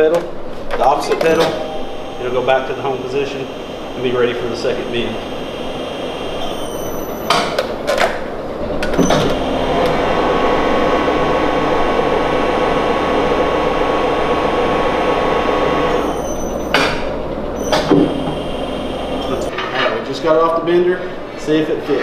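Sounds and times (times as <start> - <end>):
tube bender humming: 1.1 - 7.4.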